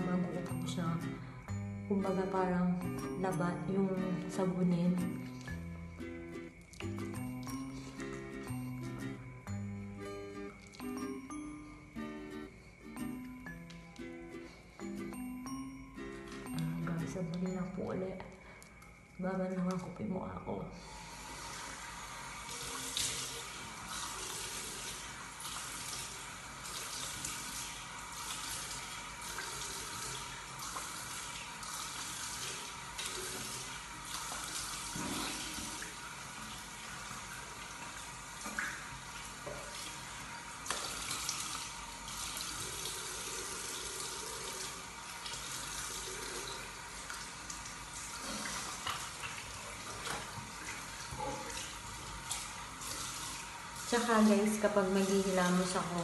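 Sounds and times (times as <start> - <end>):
tap water running into sink: 20.9 - 56.0.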